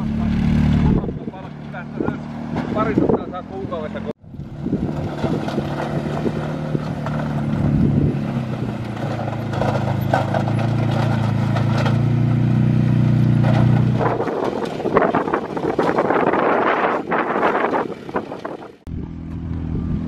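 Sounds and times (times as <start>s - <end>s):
dirt scraping: 0.0s - 18.8s
plow blade pushing dirt: 0.0s - 20.0s
utility vehicle engine running: 0.0s - 20.0s
wind rushing: 4.2s - 8.8s, 14.0s - 18.8s.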